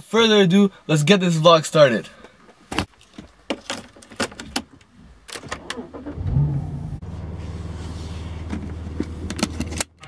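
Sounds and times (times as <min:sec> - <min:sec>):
car engine starting and idling: 0:05.0 - 0:10.0
ignition clicks: 0:05.3 - 0:06.9.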